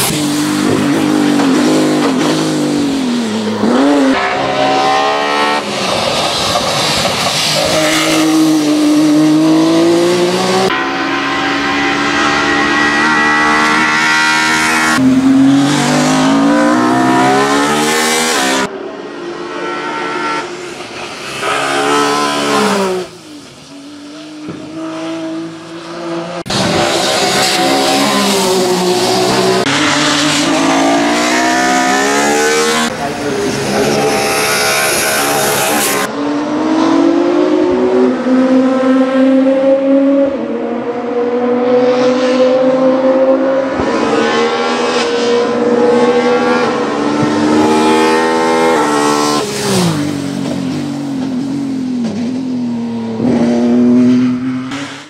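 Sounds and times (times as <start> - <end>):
race car engine revving: 7.5 - 18.7, 24.2 - 55.0.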